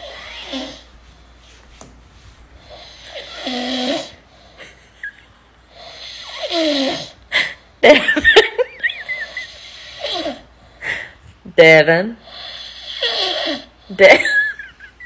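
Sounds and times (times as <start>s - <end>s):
man snoring loudly: 2.7s - 4.2s, 5.8s - 7.2s.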